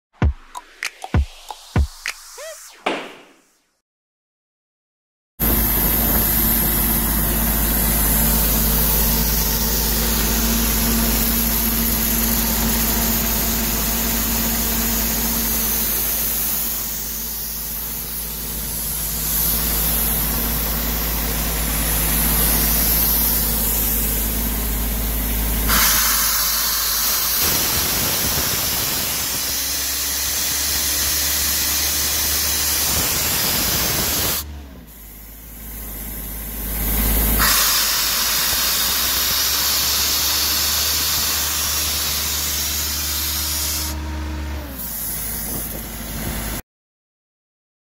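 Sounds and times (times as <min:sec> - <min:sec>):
compressor engine running: 0:05.4 - 0:46.2
loud air hiss: 0:25.7 - 0:35.4, 0:37.4 - 0:44.0.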